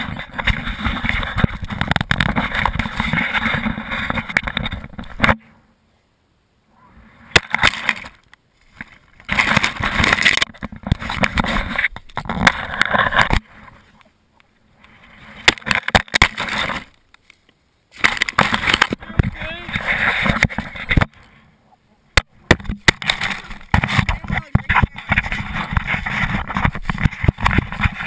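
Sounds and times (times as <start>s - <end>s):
wind noise on camera microphone: 0.0s - 5.4s, 9.1s - 14.0s, 18.0s - 21.2s, 22.4s - 28.0s
camera knocks and thumps: 22.4s - 28.0s.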